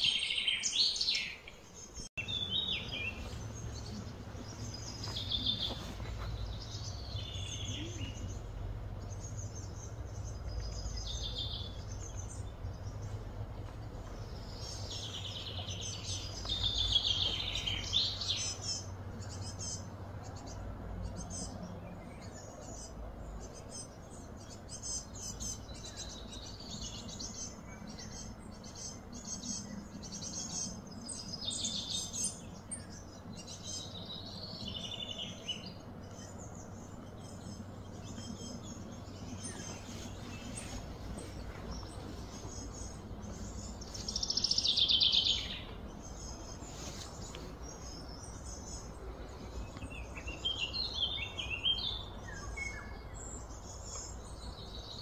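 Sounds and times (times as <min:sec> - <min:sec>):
low outdoor rumble: 0:00.0 - 0:55.0
wild birds singing: 0:00.0 - 0:55.0.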